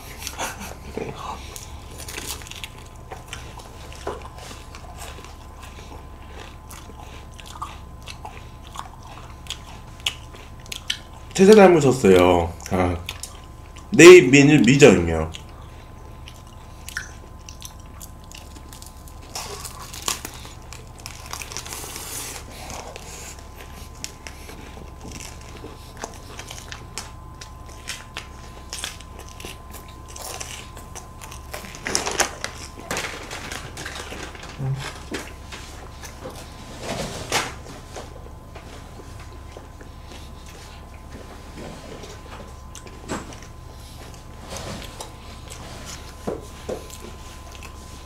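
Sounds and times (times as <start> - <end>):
crisp bites and chewing: 1.5 - 11.5, 16.2 - 35.4.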